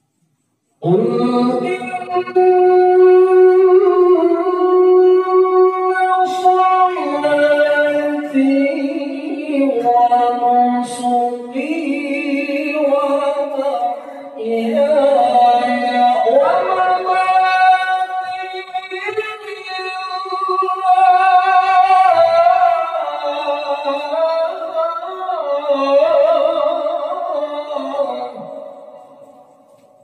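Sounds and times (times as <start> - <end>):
man reciting melodically over loudspeakers: 0.0 - 30.0.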